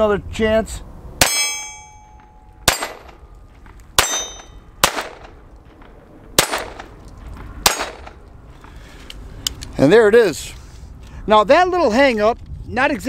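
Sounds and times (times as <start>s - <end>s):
steel target ringing: 1.2s - 3.3s, 4.0s - 5.2s
pistol shots: 2.6s - 3.2s, 4.0s - 7.0s, 7.6s - 8.2s.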